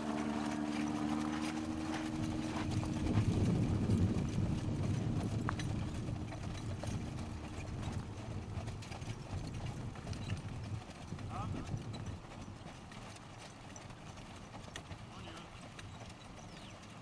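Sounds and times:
low rumble: 0.0s - 10.4s
hoofbeats trotting on sand: 0.0s - 17.0s.

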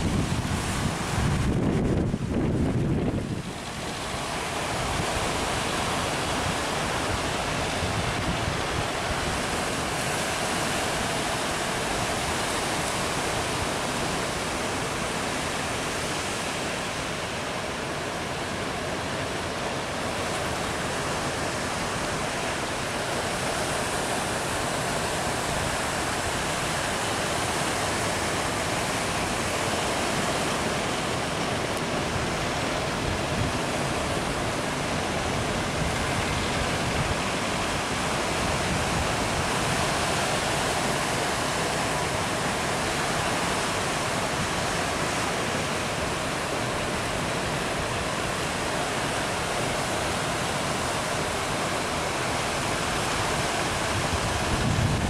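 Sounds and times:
ocean waves breaking: 0.0s - 55.0s.

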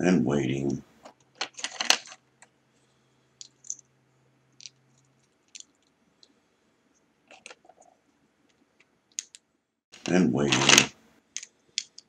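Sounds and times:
plastic bricks clicking together: 4.6s - 6.3s, 9.1s - 9.4s, 10.6s - 12.0s.

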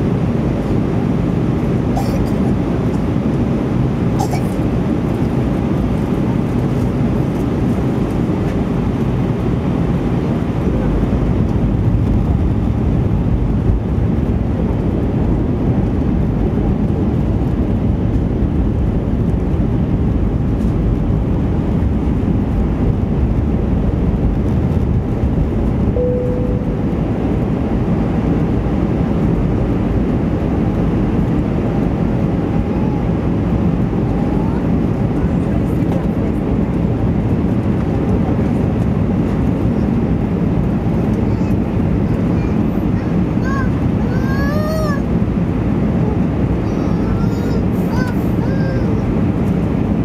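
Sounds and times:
cabin airflow rush: 0.0s - 50.0s
engine drone: 0.0s - 50.0s
short faint tone: 26.0s - 27.7s.

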